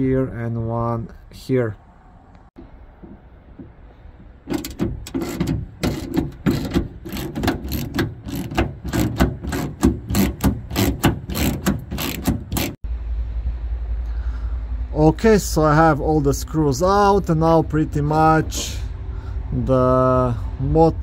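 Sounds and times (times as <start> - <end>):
ratchet wrench clicking: 4.5 - 12.8.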